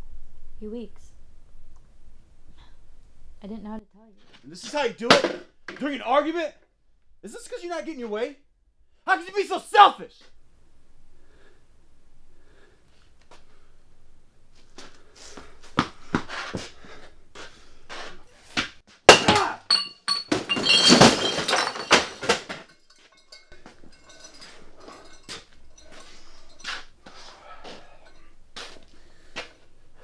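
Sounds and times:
crash and clatter of hard objects: 19.1 - 25.3
ringing clinks: 19.7 - 27.0, 27.6 - 28.4.

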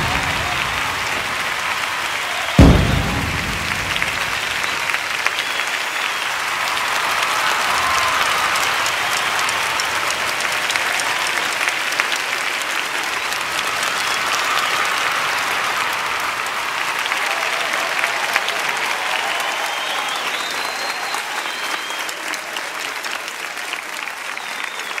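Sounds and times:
large crowd applauding: 0.0 - 25.0.

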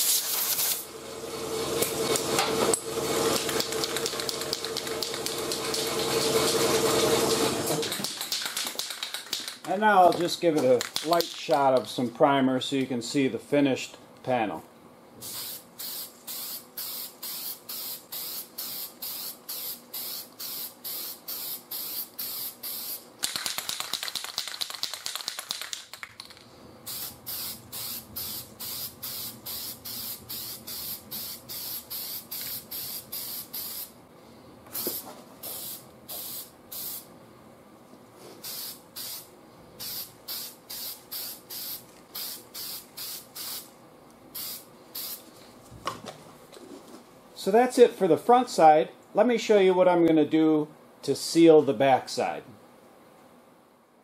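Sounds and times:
aerosol can spraying: 0.0 - 0.9, 3.3 - 9.0, 15.2 - 25.8, 26.9 - 33.9, 34.8 - 37.1, 38.4 - 43.7, 44.3 - 45.2.

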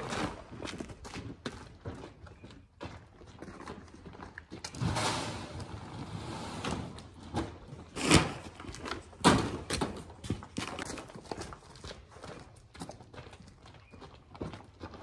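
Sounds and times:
sharp bangs: 4.8 - 5.9.

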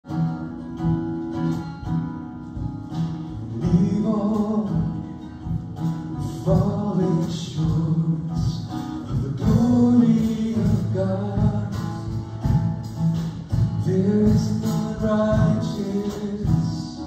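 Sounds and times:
strummed guitar: 0.0 - 17.0
person singing: 3.3 - 5.3, 6.1 - 12.3, 13.8 - 17.0.

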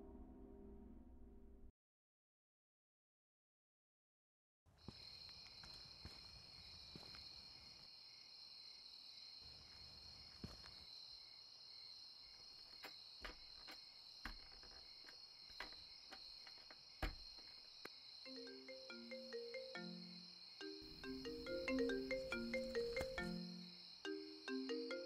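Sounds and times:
crickets chirring: 4.8 - 25.0
soft footsteps: 4.9 - 7.9, 12.3 - 17.9, 20.8 - 23.6.

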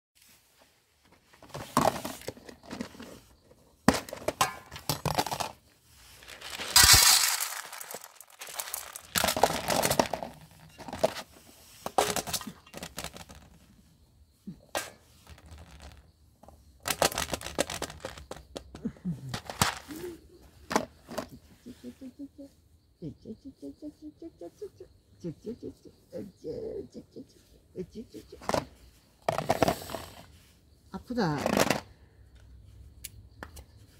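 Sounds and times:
plastic tub and lid handled: 1.1 - 5.6, 6.3 - 13.7
dry kibble rattling: 4.0 - 13.8, 15.1 - 21.6.

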